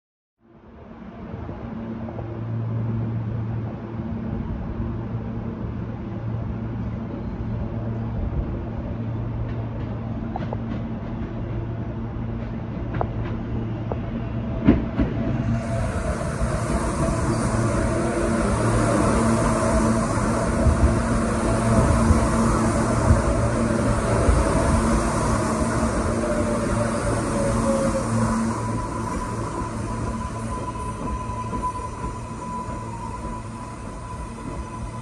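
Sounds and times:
train electric hum: 0:00.4 - 0:35.0
hiss: 0:15.4 - 0:35.0.

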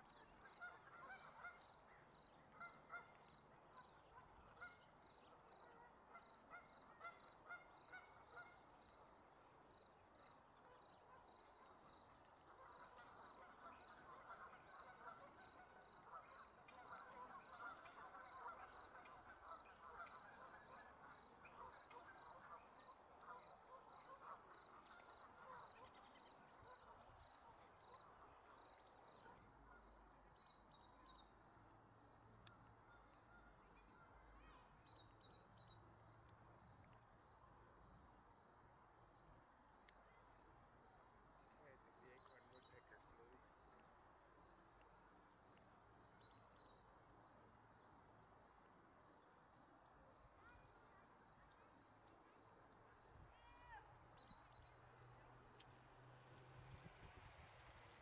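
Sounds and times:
distant geese honking: 0:00.4 - 0:01.9, 0:02.5 - 0:09.1, 0:10.6 - 0:30.1.

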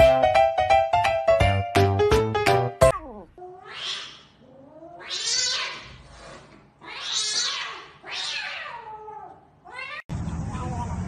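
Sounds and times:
cat yowling: 0:02.9 - 0:05.9, 0:06.8 - 0:10.1.

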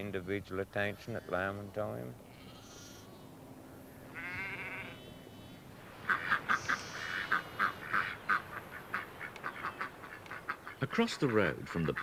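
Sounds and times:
sheep bleating: 0:02.2 - 0:03.1, 0:04.1 - 0:05.1
ducks quacking: 0:03.8 - 0:12.0.

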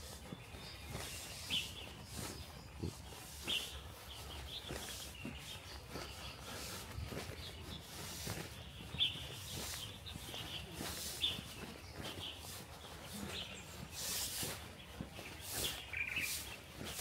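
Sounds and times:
outdoor background noise: 0:00.0 - 0:17.0
high bird chirps: 0:15.3 - 0:17.0.

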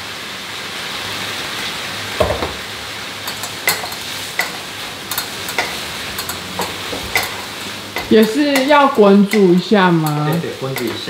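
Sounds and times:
zucchini sizzling in a pan: 0:00.0 - 0:11.0
utensil clicking against pan: 0:03.3 - 0:11.0.

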